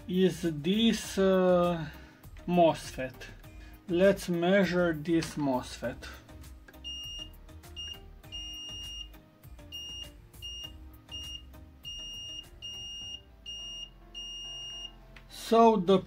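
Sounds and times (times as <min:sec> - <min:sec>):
multimeter beeps: 0:06.8 - 0:15.0.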